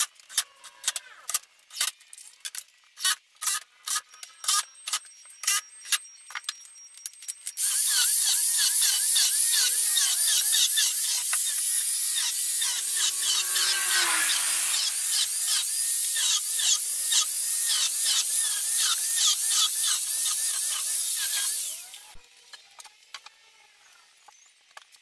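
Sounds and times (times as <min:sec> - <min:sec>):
trim router cutting laminate: 0:07.6 - 0:22.0.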